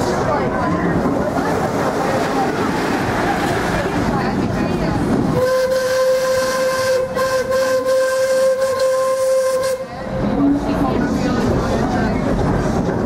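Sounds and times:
steam locomotive whistle blast: 5.4 - 10.0.

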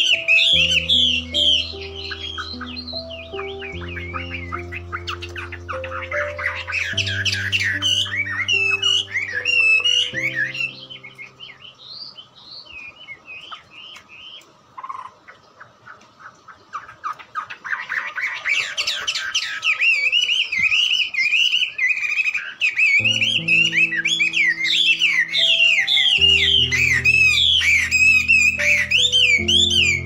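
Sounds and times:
low music notes: 0.0 - 11.6, 23.0 - 30.0
songbirds chirping: 0.0 - 30.0.

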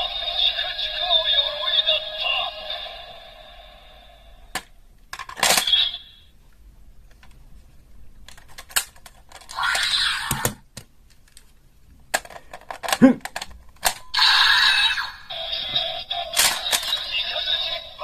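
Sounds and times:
plastic toys clicking and clattering: 4.6 - 5.8, 8.2 - 11.5, 12.1 - 14.1, 16.3 - 17.2
plastic rattling: 8.3 - 9.6, 12.1 - 14.0.

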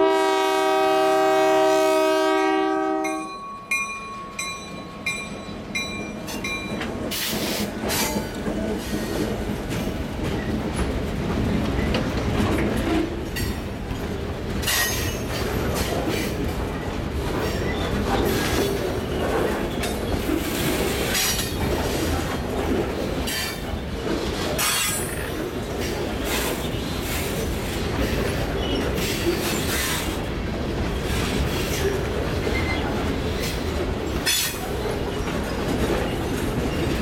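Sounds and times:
locomotive horn: 0.0 - 3.4
train wheels rumbling on rails: 0.0 - 37.0
train clatter: 3.1 - 37.0.

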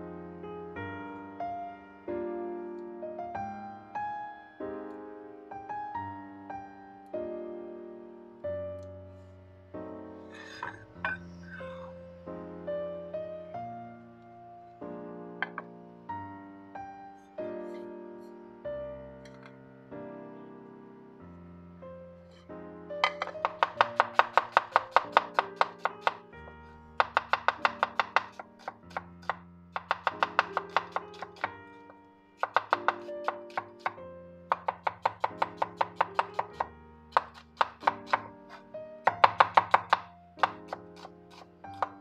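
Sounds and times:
background piano music: 0.0 - 42.0
knife chopping on wooden board: 23.0 - 42.0.

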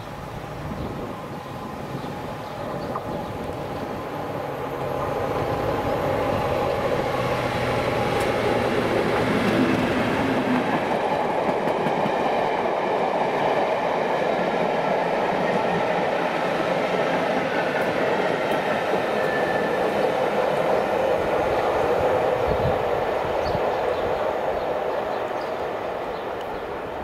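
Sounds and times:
train wheels clattering on track: 2.0 - 22.7.

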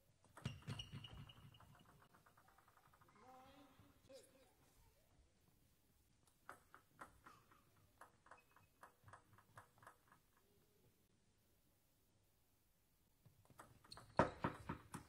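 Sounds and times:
table tennis ball bouncing: 0.2 - 3.2, 6.2 - 10.5, 13.4 - 15.0.

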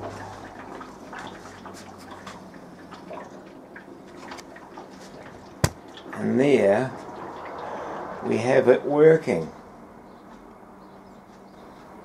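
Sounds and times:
water ticking and dripping: 0.0 - 7.8.

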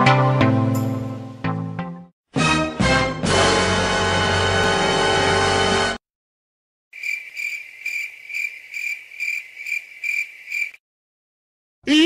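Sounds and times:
background music: 0.0 - 6.0
cricket chirping: 7.0 - 10.8.

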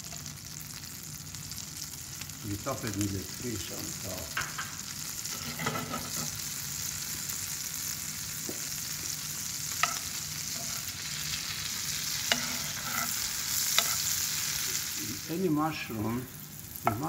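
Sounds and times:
mushrooms sizzling in a pan: 0.0 - 17.0
metal spoon clinking on pan: 9.8 - 10.9, 12.2 - 14.1.

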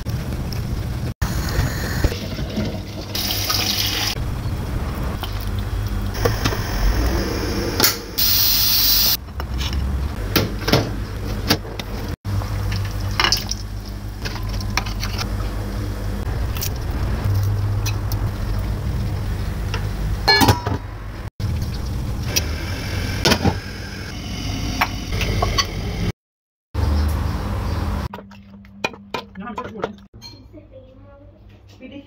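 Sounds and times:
loud hiss: 6.2 - 9.2.

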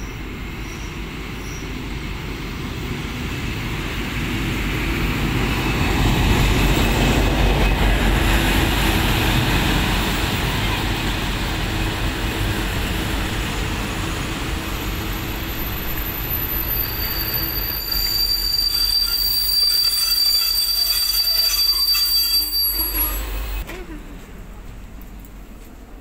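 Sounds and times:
train carriages rumbling: 0.0 - 26.0
high brake squeal: 15.1 - 23.7.

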